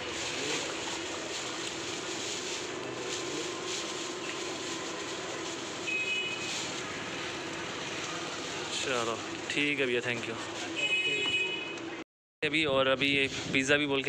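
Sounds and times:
plastic bag rustling and crinkling: 0:00.0 - 0:10.8.

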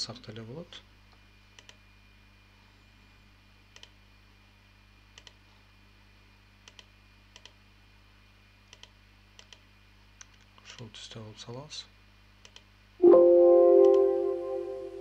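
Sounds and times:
faint electrical hum: 0:00.0 - 0:15.0
computer mouse clicking: 0:01.6 - 0:01.8, 0:03.7 - 0:04.0, 0:05.2 - 0:05.4, 0:06.6 - 0:07.6, 0:08.7 - 0:09.6, 0:12.4 - 0:12.7.

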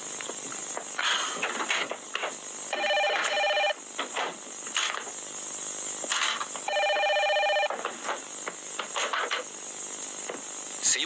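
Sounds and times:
electronic telephone ringing: 0:02.7 - 0:03.8, 0:06.7 - 0:07.8.

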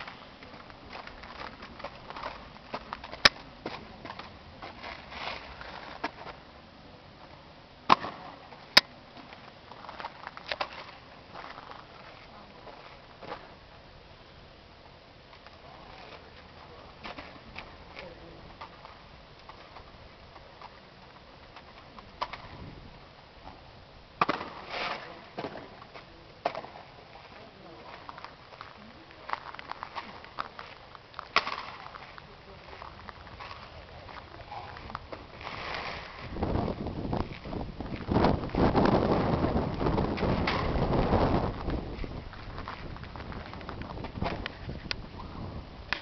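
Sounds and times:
sharp crack: 0:07.9 - 0:09.0, 0:24.2 - 0:25.8, 0:29.2 - 0:33.8, 0:38.1 - 0:41.8.

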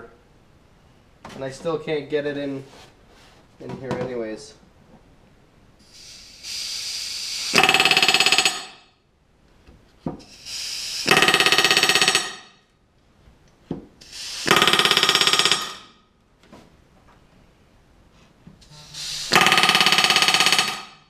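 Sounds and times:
short hiss of air: 0:05.8 - 0:07.6, 0:10.2 - 0:11.2, 0:14.0 - 0:14.6, 0:18.6 - 0:19.4.

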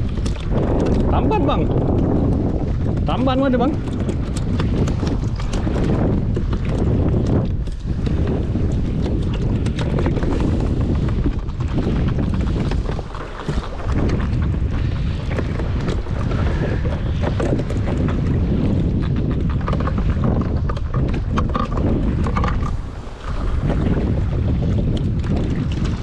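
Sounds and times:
sharp ticks and slaps: 0:00.0 - 0:16.3
wind buffeting microphone: 0:00.0 - 0:26.0.

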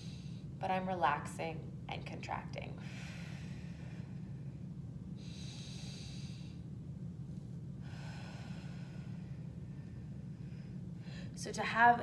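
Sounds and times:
woman breathing slowly: 0:00.0 - 0:00.6, 0:02.7 - 0:11.5
steady low hum: 0:00.0 - 0:12.0.

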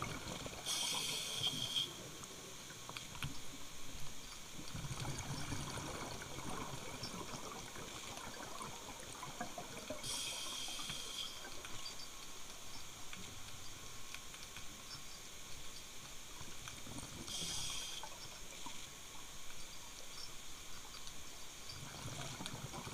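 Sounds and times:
faint underwater crackling: 0:00.0 - 0:22.9
regulator inhalation hiss: 0:00.6 - 0:02.0, 0:10.0 - 0:11.5, 0:17.3 - 0:18.1
exhaled air bubbling underwater: 0:04.6 - 0:11.9.

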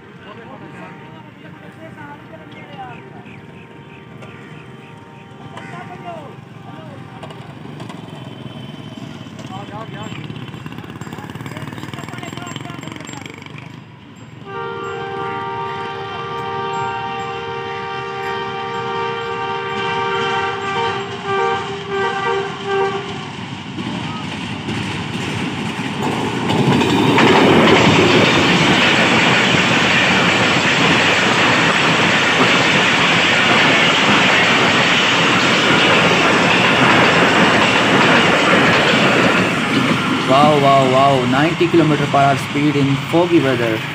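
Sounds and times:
train rushing past: 0:00.0 - 0:43.9
wheels clattering over rails: 0:07.1 - 0:14.2, 0:22.5 - 0:43.9
locomotive horn blasts: 0:14.4 - 0:23.4.

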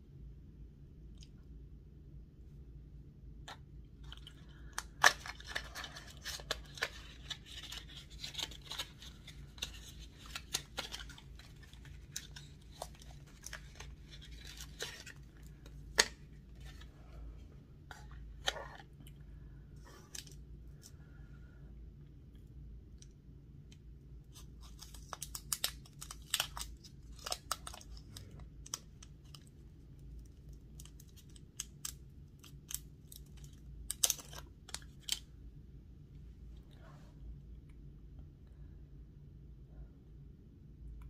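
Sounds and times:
plastic wrapper crinkling: 0:04.0 - 0:16.9, 0:24.4 - 0:35.3.

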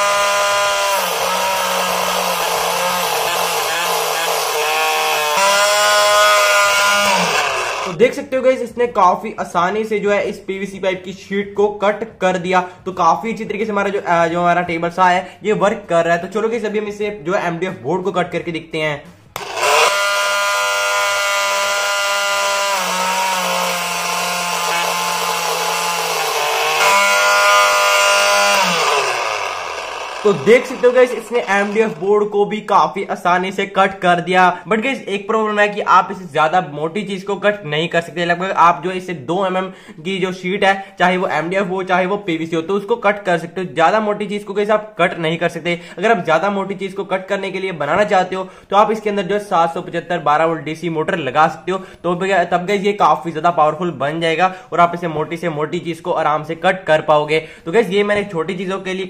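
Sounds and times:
saw blade cutting plastic sheet: 0:00.0 - 0:08.0, 0:19.4 - 0:32.4
small saw motor whining: 0:00.0 - 0:08.0, 0:19.4 - 0:32.2.

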